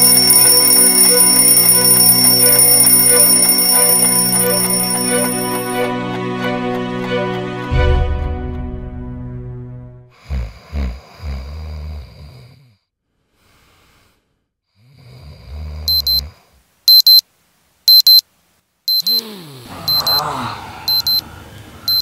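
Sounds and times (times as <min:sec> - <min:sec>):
alarm clock beeping: 0:00.0 - 0:05.9, 0:15.9 - 0:16.2, 0:16.9 - 0:17.2, 0:17.9 - 0:18.2, 0:18.9 - 0:19.2, 0:19.9 - 0:20.2, 0:20.9 - 0:21.2
man snoring: 0:10.1 - 0:14.2, 0:14.8 - 0:16.6, 0:19.1 - 0:21.9
sleepy groan: 0:19.1 - 0:21.9.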